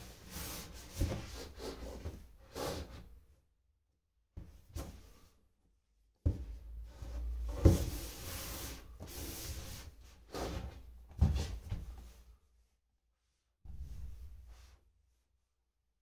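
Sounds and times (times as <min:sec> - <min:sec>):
rubbing and sliding: 0:00.0 - 0:03.1, 0:06.8 - 0:12.4.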